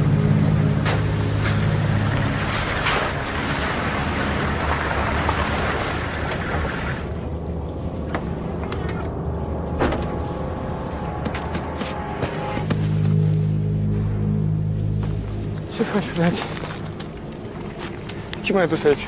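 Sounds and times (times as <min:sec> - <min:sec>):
low sustained drone: 0:00.0 - 0:18.3.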